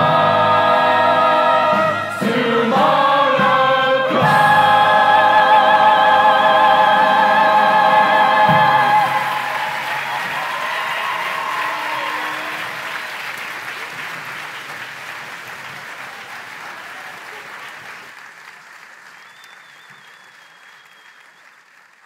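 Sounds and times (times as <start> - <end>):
audience applauding: 7.7 - 22.0.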